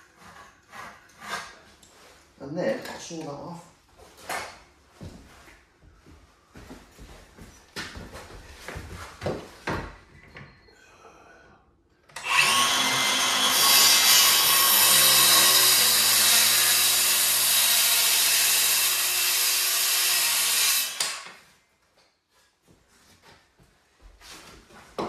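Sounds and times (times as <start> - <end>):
circular saw cutting wood: 12.2 - 21.3.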